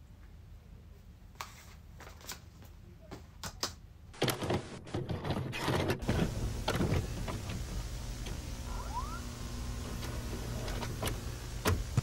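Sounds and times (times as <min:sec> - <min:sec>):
vcr mechanical clicks and clunks: 0:04.2 - 0:12.0
low hum: 0:06.0 - 0:12.0
tape hiss: 0:06.0 - 0:12.0.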